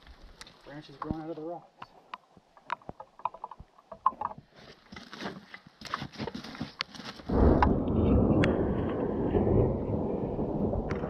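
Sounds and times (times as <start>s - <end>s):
footsteps: 0.0s - 7.5s
deep rolling thunder: 7.3s - 11.0s.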